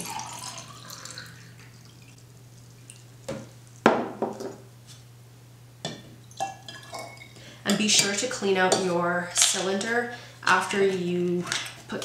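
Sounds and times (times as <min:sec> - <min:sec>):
water pouring into glass: 0:00.0 - 0:02.1
water dripping: 0:00.0 - 0:02.2.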